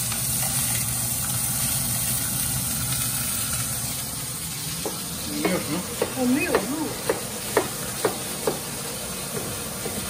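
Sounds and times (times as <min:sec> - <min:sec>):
beef sizzling in pot: 0:00.0 - 0:10.0.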